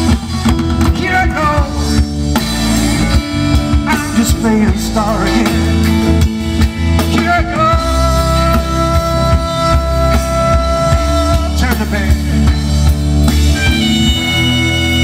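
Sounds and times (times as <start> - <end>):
drum kit: 0.0 - 15.0
electric bass: 0.0 - 15.0
soprano saxophone playing: 13.6 - 15.0.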